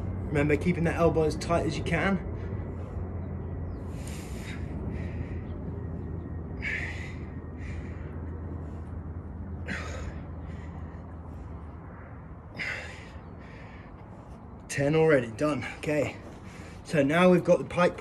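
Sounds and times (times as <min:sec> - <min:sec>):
steady low hum: 0:00.0 - 0:18.0
person breathing hard: 0:02.2 - 0:14.7, 0:15.6 - 0:16.9.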